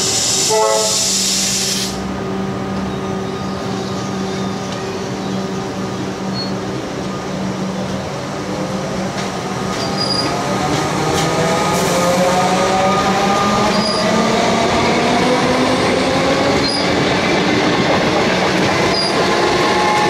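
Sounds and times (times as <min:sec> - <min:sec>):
loud air hiss: 0:00.0 - 0:02.1
train hum: 0:00.0 - 0:20.0
train wheels rolling: 0:02.7 - 0:20.0.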